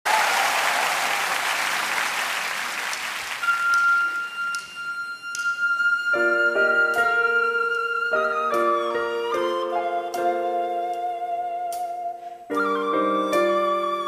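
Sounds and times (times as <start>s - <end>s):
audience applause: 0.0s - 4.2s.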